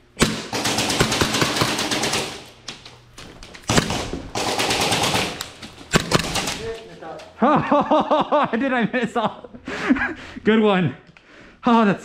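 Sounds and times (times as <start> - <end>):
airsoft gun firing full auto: 0.2 - 2.5, 3.7 - 6.8.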